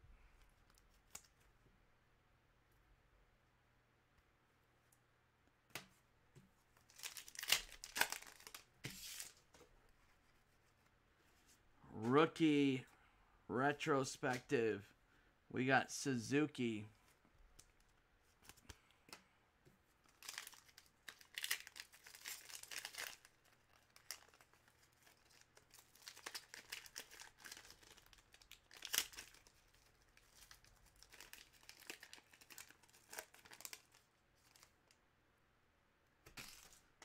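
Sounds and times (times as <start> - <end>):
foil wrapper tearing and crinkling: 6.9 - 9.4, 20.0 - 34.7.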